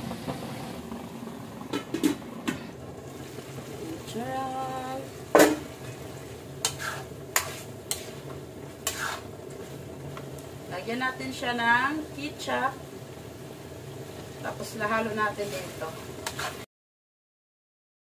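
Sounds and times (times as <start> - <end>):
food sizzling: 0.0 - 16.7
metal ladle scraping a wok: 5.4 - 9.8, 15.4 - 16.6.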